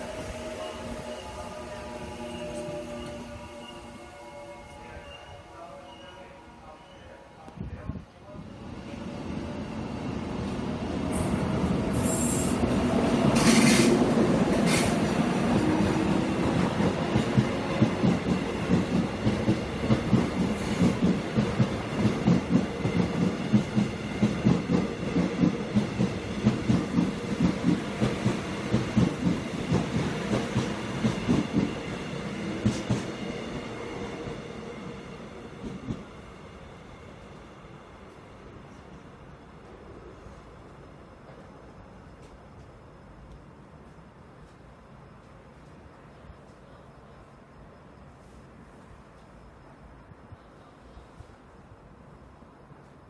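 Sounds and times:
electric train inverter whine: 0:00.0 - 0:53.0
train wheels clacking on rails: 0:11.1 - 0:34.6.

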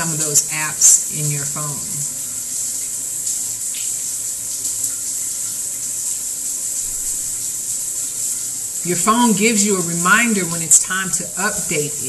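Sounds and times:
shower water running: 0:00.0 - 0:12.0.

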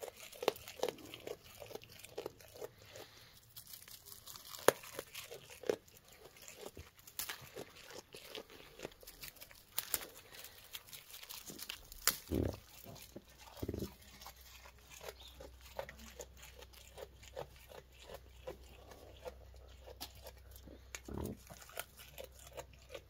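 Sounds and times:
goat chewing leaves and twigs: 0:00.0 - 0:23.0.

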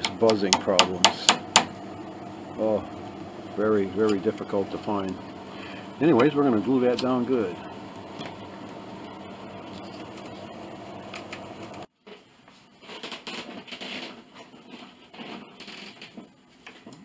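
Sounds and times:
machine hum: 0:00.0 - 0:11.9.

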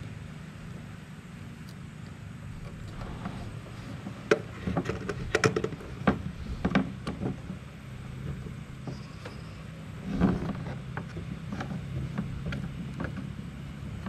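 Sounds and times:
steady low hum: 0:00.0 - 0:14.0
cable handling clicks and rustles: 0:04.2 - 0:07.6, 0:10.0 - 0:14.0.

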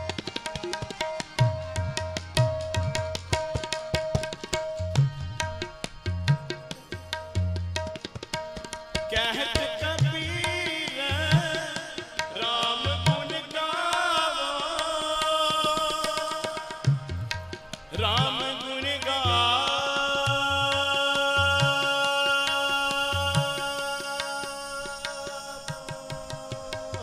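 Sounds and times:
harmonium chords: 0:00.0 - 0:27.0
tabla strokes: 0:00.0 - 0:27.0
man singing a hymn: 0:09.1 - 0:16.6, 0:18.0 - 0:27.0.

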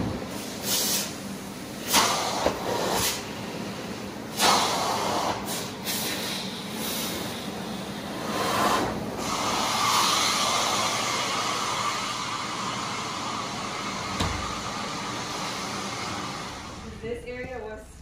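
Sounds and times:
vacuum machine running: 0:00.0 - 0:17.5.

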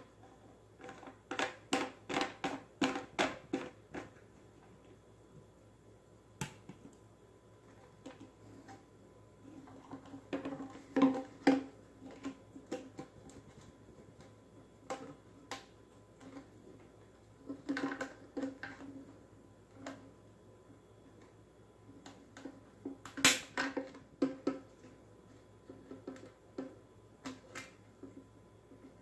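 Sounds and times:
plastic parts clicking and knocking: 0:00.1 - 0:04.2, 0:09.6 - 0:20.1, 0:21.9 - 0:25.0, 0:25.6 - 0:29.0.

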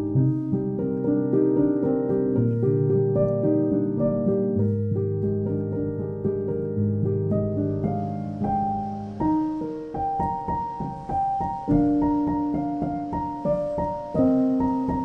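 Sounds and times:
slow gentle piano melody: 0:00.0 - 0:15.0.

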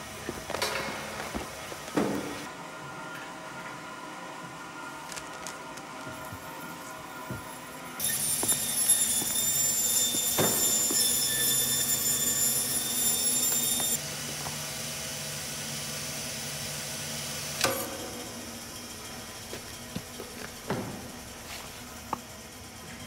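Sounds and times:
band saw high whine: 0:06.5 - 0:23.0.

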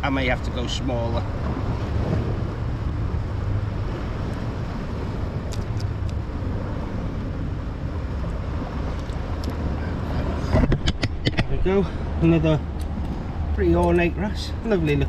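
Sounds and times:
sea: 0:00.0 - 0:15.0
wind on microphone: 0:01.2 - 0:13.8.

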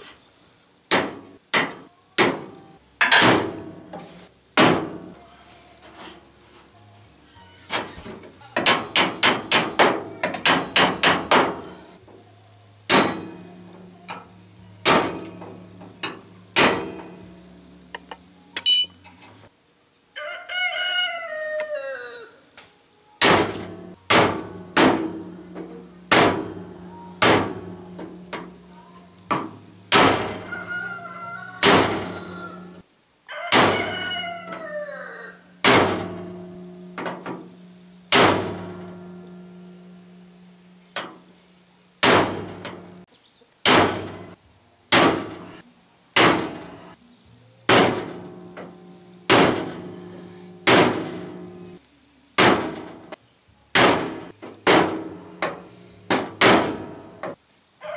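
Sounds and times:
rooster crowing: 0:20.2 - 0:22.5, 0:30.2 - 0:35.6.

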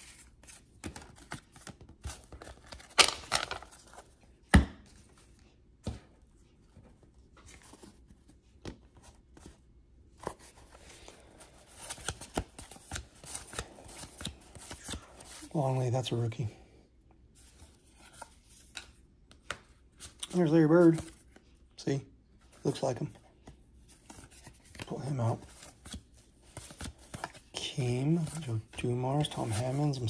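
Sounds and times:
cards sliding and flicking: 0:10.2 - 0:15.4.

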